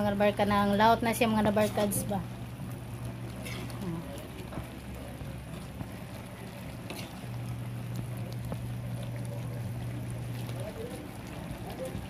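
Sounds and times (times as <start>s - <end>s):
steady low hum: 0.0s - 12.0s
chicken sizzling in a pan: 3.0s - 11.8s
metal spoon scraping a pan: 6.9s - 7.2s.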